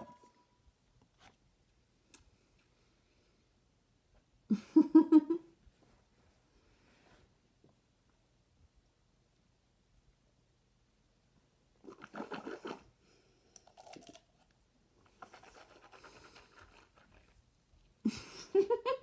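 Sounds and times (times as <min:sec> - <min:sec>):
person spitting water: 0:11.8 - 0:13.0, 0:13.6 - 0:14.2
blowing and breathing: 0:11.9 - 0:13.8
muffled laugh: 0:18.0 - 0:19.0.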